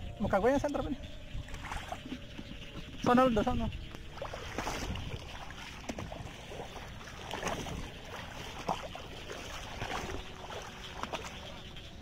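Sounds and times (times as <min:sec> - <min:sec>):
person wading through water: 0:03.8 - 0:12.0
sharp water splashes: 0:03.9 - 0:11.9.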